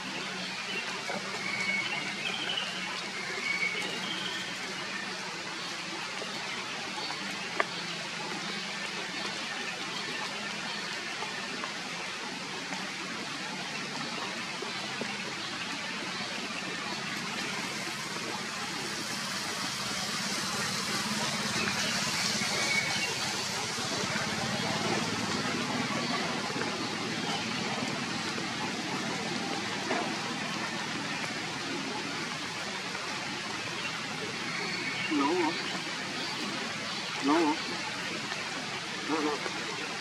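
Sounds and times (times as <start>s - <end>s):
heavy rain on foliage: 15.0s - 40.0s.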